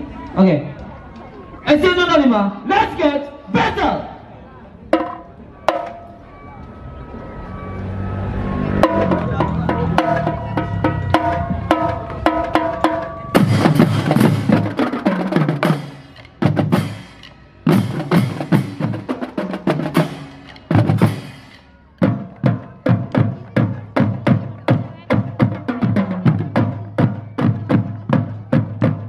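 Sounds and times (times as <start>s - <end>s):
marching drums and cymbals: 4.9s - 6.2s, 8.0s - 29.0s.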